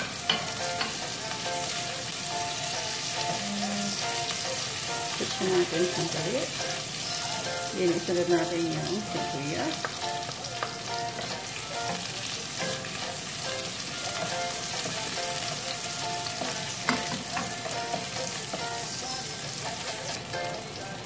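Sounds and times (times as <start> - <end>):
onion and ginger sizzling in oil: 0.0 - 21.0.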